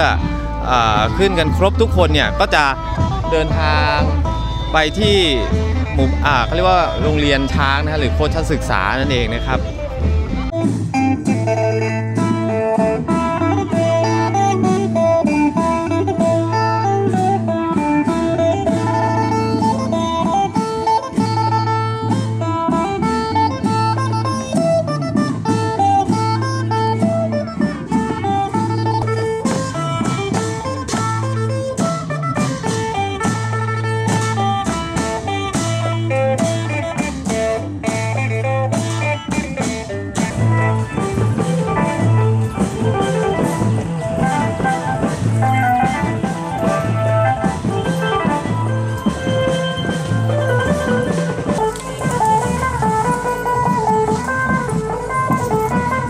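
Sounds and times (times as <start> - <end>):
low bass note: 0.0 - 10.5
plucked string instrument: 0.0 - 56.0.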